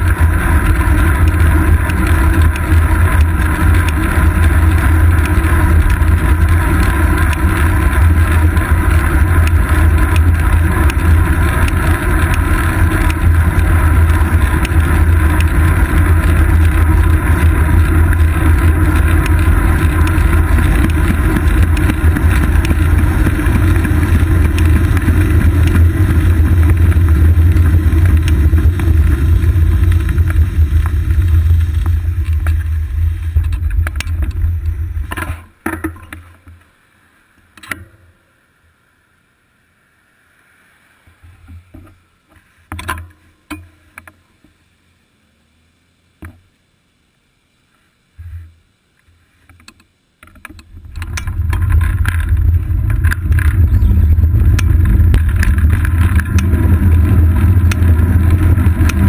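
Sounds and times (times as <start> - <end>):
bicycle road noise: 0.0 - 59.0
wind buffeting: 50.8 - 59.0.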